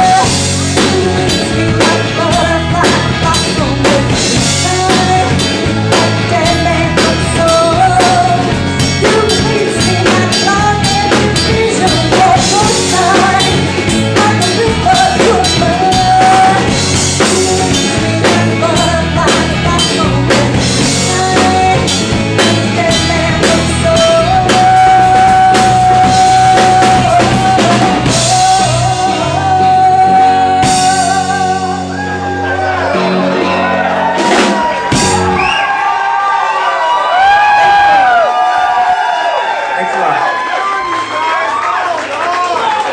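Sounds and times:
woman singing: 0.0 - 32.4
live rock band playing: 0.0 - 41.6.

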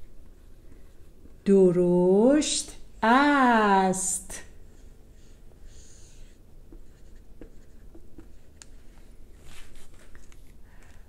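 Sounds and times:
marker writing on whiteboard: 4.6 - 9.0.

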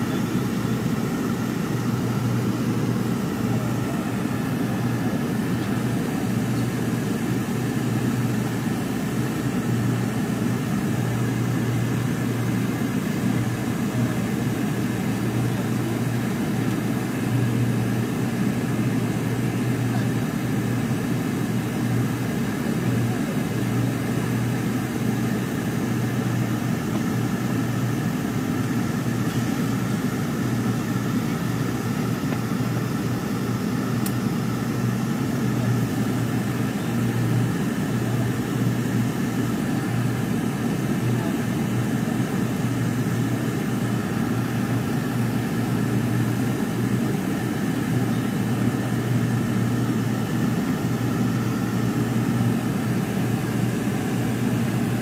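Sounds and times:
airliner engine drone: 0.0 - 55.0.

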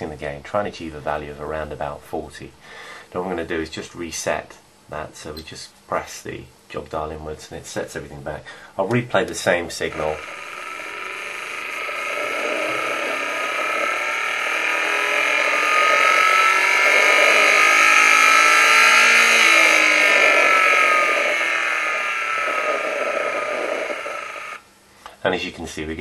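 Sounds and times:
engine noise through speakers: 9.8 - 24.6.

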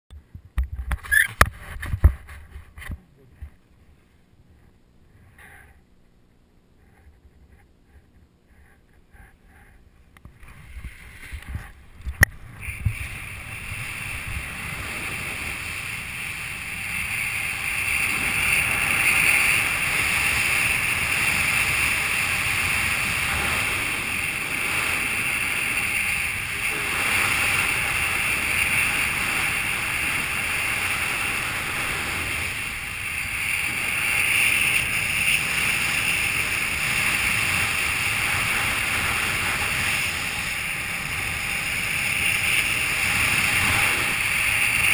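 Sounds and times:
wind rushing over microphone: 10.5 - 44.9.

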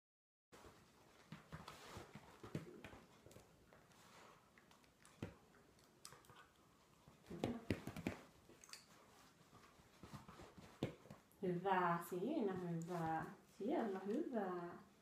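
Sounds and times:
dog moving soft taps: 7.2 - 11.3.

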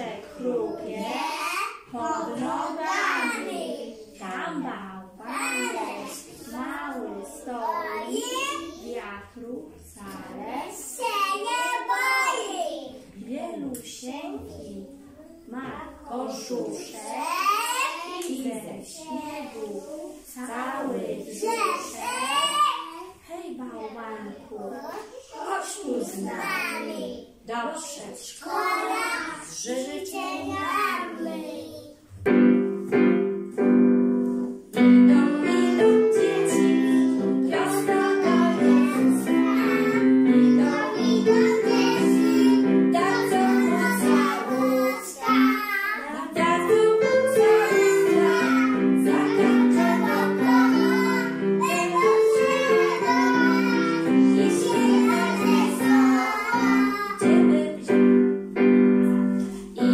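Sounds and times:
children singing: 0.0 - 4.0, 5.2 - 8.8, 28.4 - 31.8, 35.1 - 57.6
piano accompaniment: 32.1 - 59.9.

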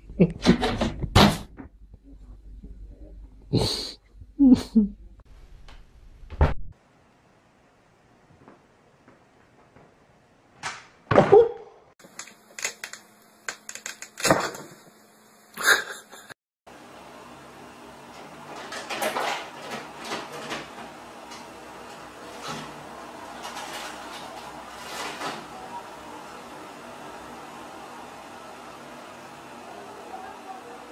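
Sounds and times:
rustling and scraping: 21.8 - 25.5.

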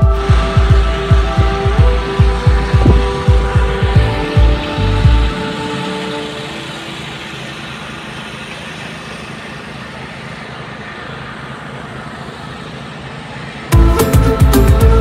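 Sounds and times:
music: 0.0 - 8.3, 13.7 - 15.0
low rumble: 0.3 - 5.4.

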